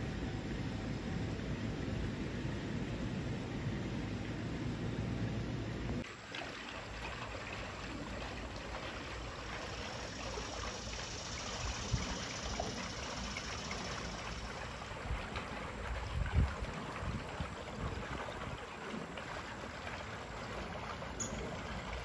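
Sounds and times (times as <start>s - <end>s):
wind buffeting microphone: 14.8s - 19.1s.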